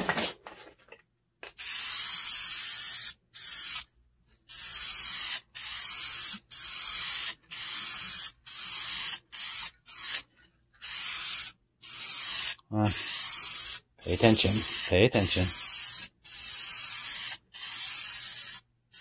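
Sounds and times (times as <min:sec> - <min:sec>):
aerosol can spraying: 0:01.5 - 0:03.9, 0:04.5 - 0:19.0.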